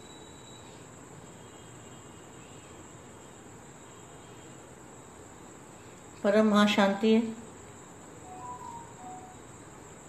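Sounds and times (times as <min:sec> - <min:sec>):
faint high-pitched whine: 0:00.0 - 0:10.0
low background hiss: 0:00.0 - 0:10.0.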